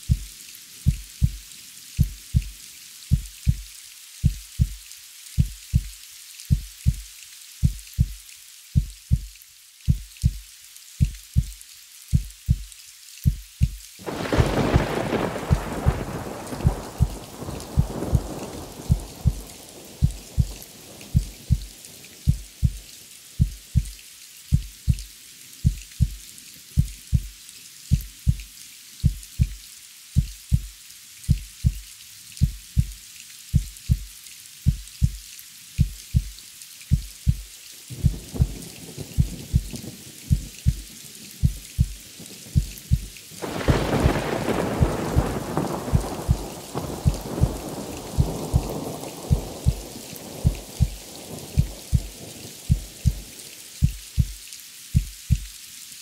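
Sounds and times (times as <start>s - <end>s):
rain falling: 0.0s - 56.0s
heartbeat double thumps: 0.1s - 0.3s, 0.9s - 1.4s, 2.0s - 3.6s, 4.2s - 4.8s, 5.4s - 5.9s, 6.5s - 7.0s, 7.6s - 8.2s, 8.8s - 9.3s, 9.9s - 10.4s, 11.0s - 11.5s, 12.1s - 22.8s, 23.4s - 23.9s, 24.5s - 25.0s, 25.6s - 26.2s, 26.8s - 27.3s, 27.9s - 28.4s, 29.0s - 29.6s, 30.2s - 30.7s, 31.3s - 31.8s, 32.4s - 33.0s, 33.6s - 34.1s, 34.7s - 35.2s, 35.8s - 38.6s, 39.2s - 42.0s, 42.6s - 54.4s, 55.0s - 55.5s
thunder rumbling: 14.0s - 22.8s, 37.9s - 54.3s.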